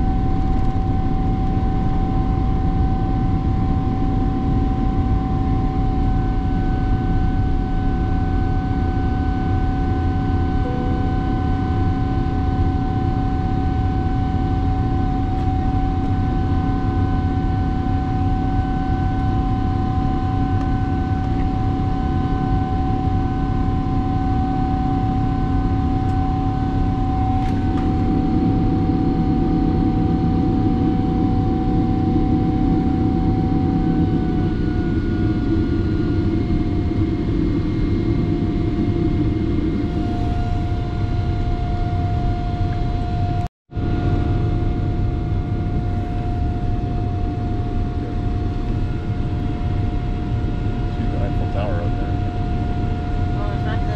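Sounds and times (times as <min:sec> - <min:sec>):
jet airliner cabin drone: 0:00.0 - 0:53.9
whining tones: 0:06.6 - 0:29.7.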